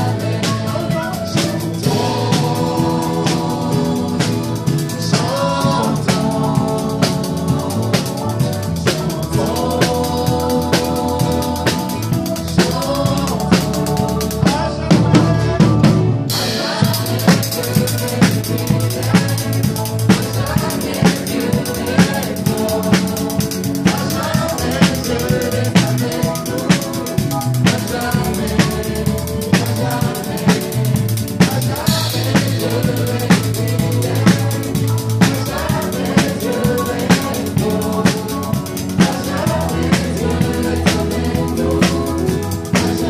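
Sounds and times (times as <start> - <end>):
drum kit beat: 0.0 - 43.0
live band playing: 0.0 - 43.0.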